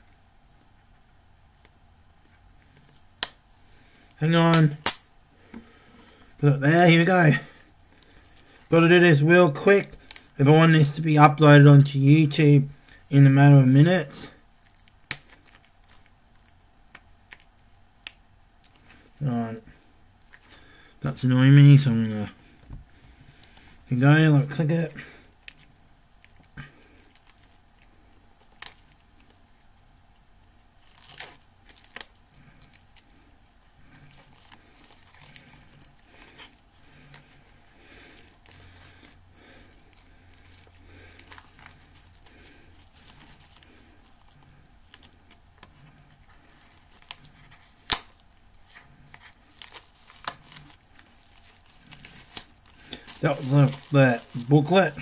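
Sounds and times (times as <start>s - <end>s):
plastic wrap crinkling and tearing: 14.2s - 19.3s, 24.4s - 55.0s.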